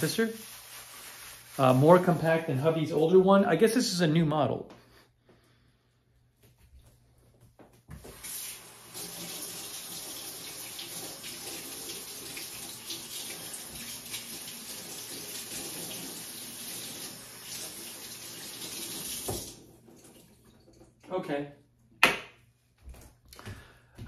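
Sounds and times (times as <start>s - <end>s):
faucet running into metal sink: 8.1s - 21.0s.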